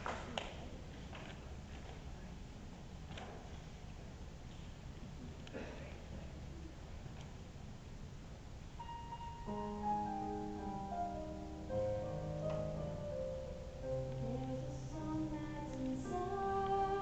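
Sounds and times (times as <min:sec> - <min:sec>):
piano over stage speakers: 0:08.7 - 0:17.0.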